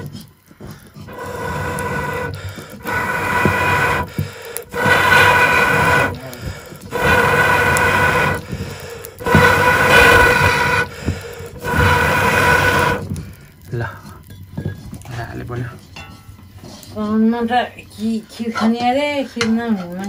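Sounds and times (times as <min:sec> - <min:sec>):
breathy blasts through a blowpipe: 0:00.6 - 0:14.3.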